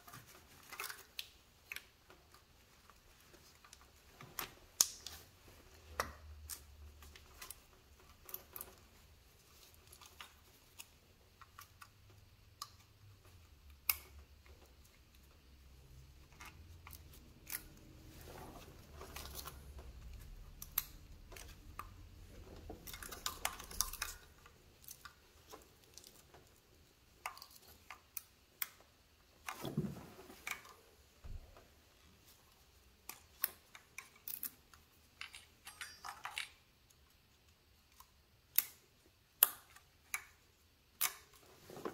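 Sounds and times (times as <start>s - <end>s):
tools and parts clicking: 22.6s - 29.8s, 32.9s - 37.1s, 37.8s - 41.4s.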